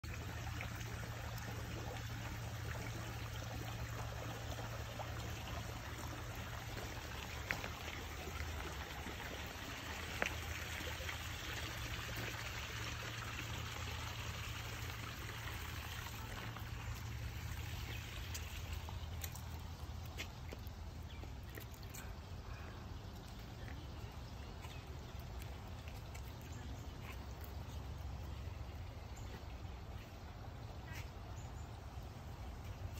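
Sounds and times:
water trickling and pouring: 0.0 - 32.9.

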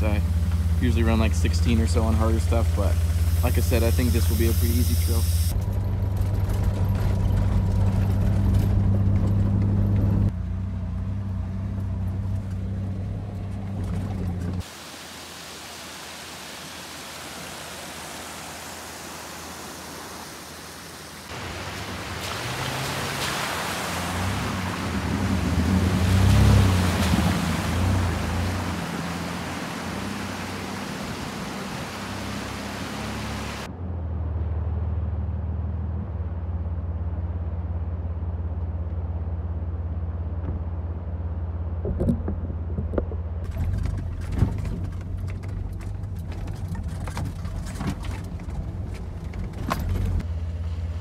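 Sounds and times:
engine running: 0.0 - 14.7, 17.7 - 51.0
tyre and wind noise: 41.8 - 50.3.

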